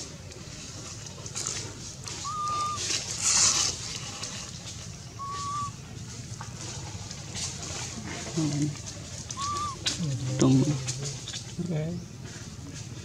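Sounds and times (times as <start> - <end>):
dry leaves rustling: 0.0 - 11.6
whistle-like calls: 2.2 - 3.7, 5.1 - 5.8, 9.3 - 10.0.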